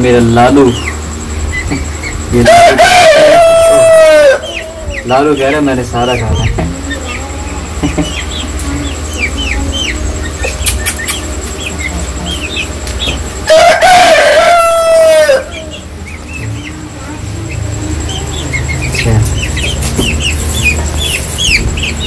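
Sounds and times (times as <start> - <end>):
chicks peeping: 0.0 - 22.0
rooster crowing: 2.4 - 6.2, 13.4 - 16.0.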